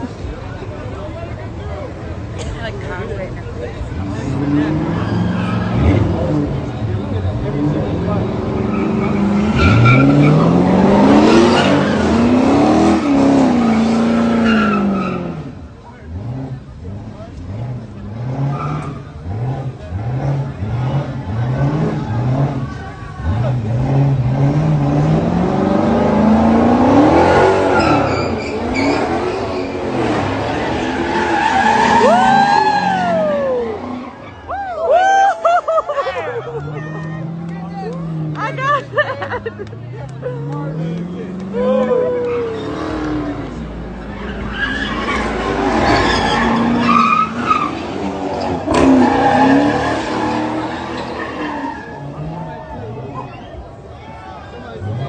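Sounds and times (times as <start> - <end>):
car engine revving: 0.0 - 34.3, 36.5 - 53.3
tyres screeching: 4.3 - 15.5, 26.6 - 34.5, 41.3 - 52.4
high cry: 31.6 - 37.0, 41.5 - 42.9.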